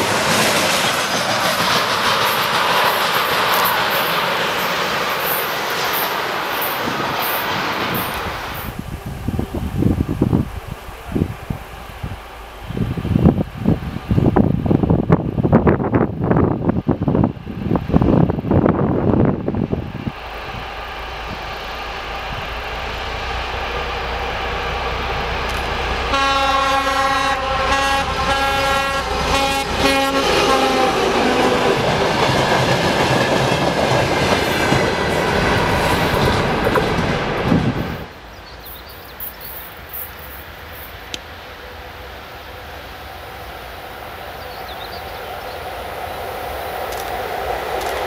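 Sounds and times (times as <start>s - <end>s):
diesel locomotive hauling train: 0.0s - 48.0s
train horn blasts: 26.0s - 31.7s.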